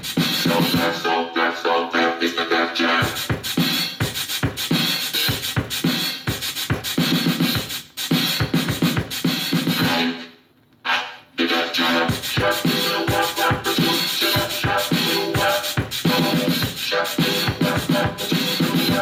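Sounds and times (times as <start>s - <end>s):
punchy drum beat: 0.0s - 1.0s, 3.0s - 10.0s, 12.1s - 19.0s
hip-hop music from boombox: 0.0s - 19.0s
turntable scratching: 0.0s - 19.0s.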